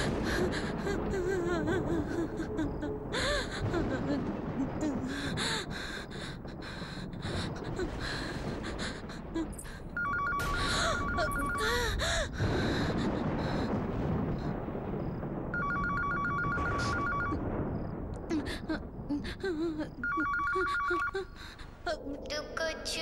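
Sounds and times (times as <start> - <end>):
telephone ringing: 10.0 - 11.6, 15.6 - 17.4, 20.0 - 21.2.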